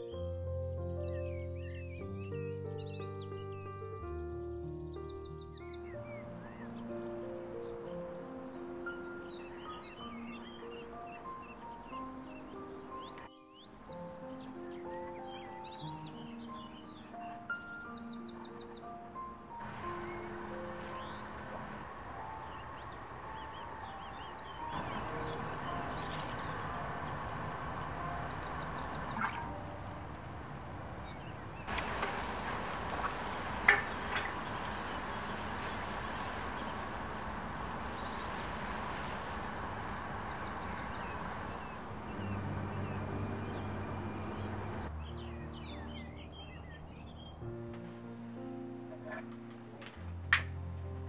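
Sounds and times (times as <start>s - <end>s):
birds chirping: 0.0s - 47.8s
water sprinkling onto plants: 24.7s - 42.1s.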